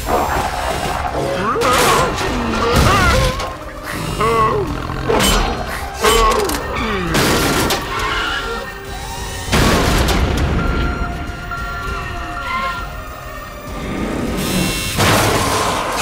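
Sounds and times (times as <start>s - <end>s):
dramatic music: 0.0s - 16.0s
heavy booming crashes: 9.4s - 16.0s.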